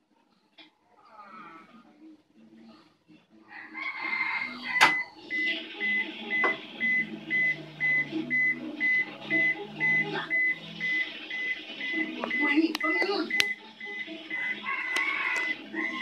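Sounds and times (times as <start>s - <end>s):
washing machine beeps: 4.8s - 16.0s.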